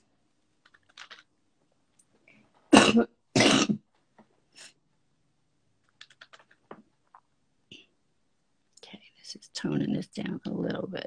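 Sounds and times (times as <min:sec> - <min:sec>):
woman coughing: 0:02.7 - 0:03.8.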